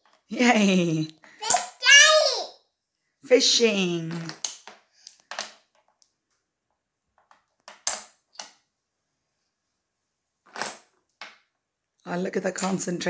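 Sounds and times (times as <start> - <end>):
wooden pieces clacking: 1.4 - 1.8, 4.2 - 6.2, 7.2 - 8.6, 10.4 - 11.5.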